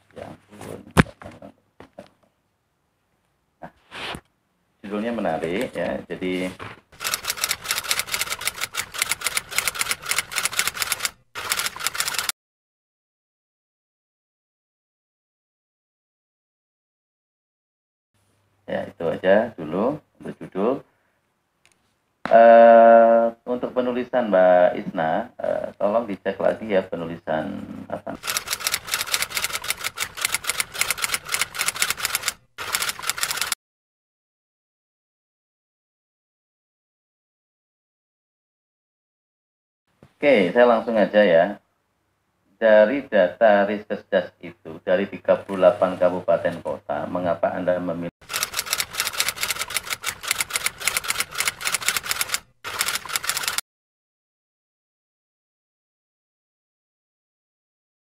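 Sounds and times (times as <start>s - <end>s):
fast typing key clicks: 7.0s - 12.3s, 28.2s - 33.6s, 48.2s - 53.6s.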